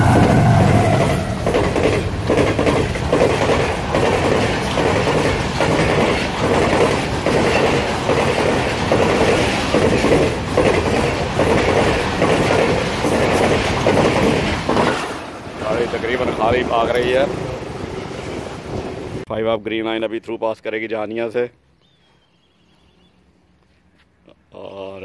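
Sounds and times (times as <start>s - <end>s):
continuous train rumble: 0.0s - 19.3s
train wheels clattering over rail joints: 1.4s - 17.4s.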